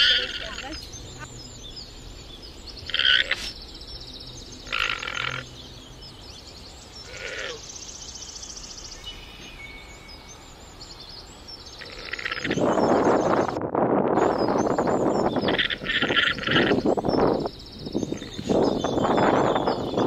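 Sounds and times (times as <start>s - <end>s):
llama nasal calls: 0.0s - 0.8s
faint bird chirps: 0.0s - 20.0s.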